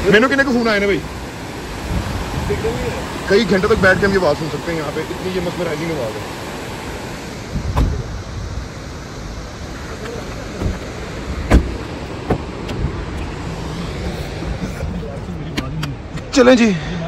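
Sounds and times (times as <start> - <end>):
fast river rushing: 0.0 - 16.9
car doors knocking and clicking: 7.6 - 8.1, 10.0 - 13.3.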